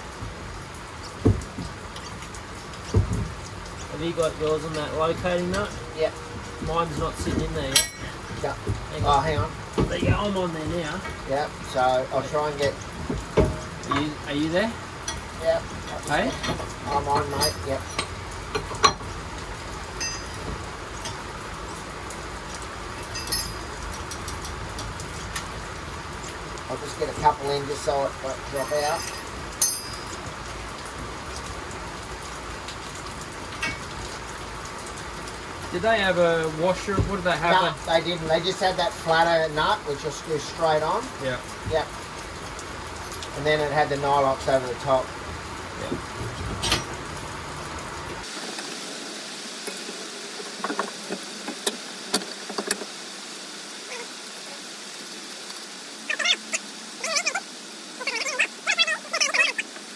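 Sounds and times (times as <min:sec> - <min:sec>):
steady rain: 0:00.0 - 0:59.9
spanner clinking on nuts: 0:07.7 - 0:08.2, 0:15.9 - 0:19.1, 0:20.0 - 0:21.2, 0:23.0 - 0:24.5, 0:28.5 - 0:30.2, 0:33.6 - 0:33.9
wavering animal calls: 0:53.8 - 0:54.7, 0:56.0 - 0:59.9.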